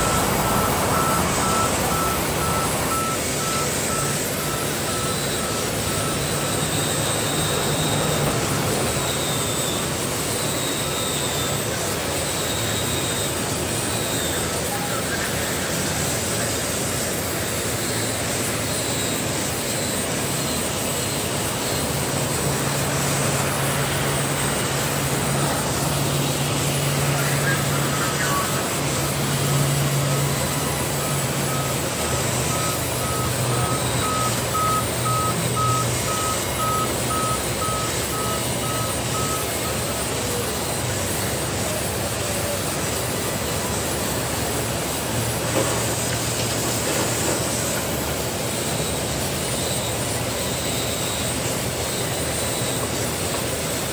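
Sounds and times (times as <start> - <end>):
repeating electronic beep: 0.0 - 15.8, 17.8 - 40.0
band saws running: 0.0 - 53.9.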